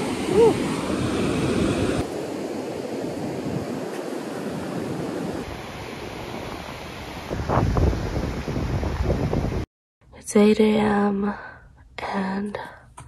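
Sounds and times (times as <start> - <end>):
small waves washing on sand: 0.0 - 9.6.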